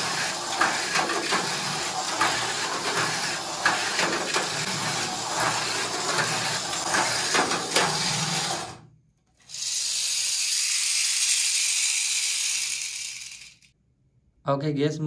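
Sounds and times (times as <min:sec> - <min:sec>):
rollers clattering against track: 0:00.0 - 0:08.8
toy car motor and gears whirring: 0:00.0 - 0:08.8, 0:09.4 - 0:13.8
high-pitched motor whir: 0:09.5 - 0:13.7.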